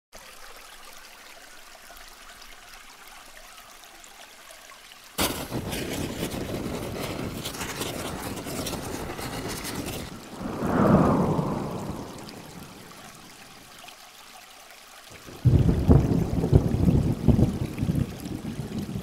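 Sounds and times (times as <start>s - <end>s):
fire crackling and rushing: 5.2s - 13.5s
faint hiss: 5.2s - 13.9s.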